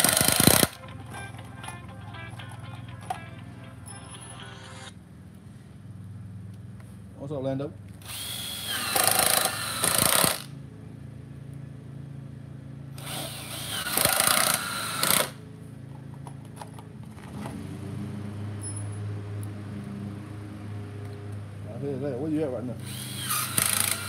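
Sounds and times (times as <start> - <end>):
cordless drill driving screws: 0.0 - 0.8, 8.0 - 10.5, 13.0 - 15.4, 22.8 - 24.0.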